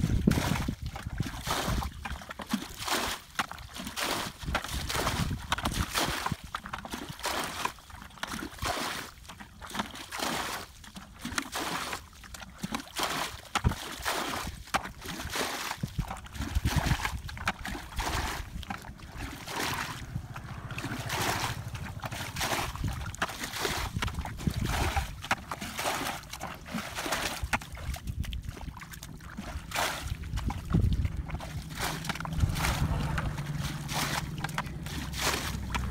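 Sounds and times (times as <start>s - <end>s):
muddy water splashing: 0.0s - 35.9s
low rumble: 17.9s - 25.3s, 29.4s - 35.9s.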